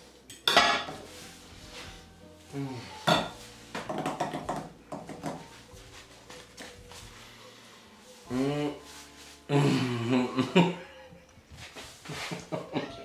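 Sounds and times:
cutlery clinking on dishes: 0.3s - 1.0s, 3.0s - 3.4s.

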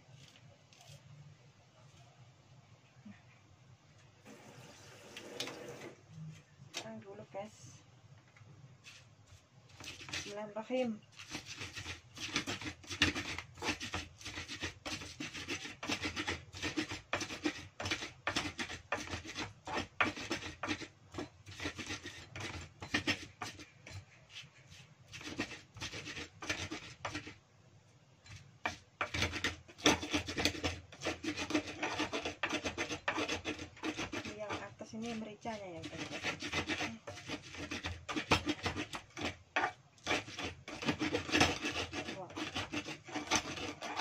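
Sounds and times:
pestle grinding in stone mortar: 8.8s - 10.4s, 11.1s - 27.4s, 28.2s - 44.0s.

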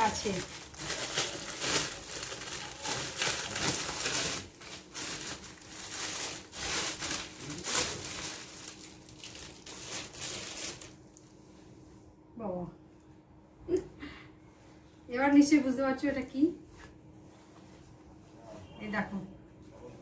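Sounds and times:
plastic packaging crinkling: 0.0s - 11.4s.

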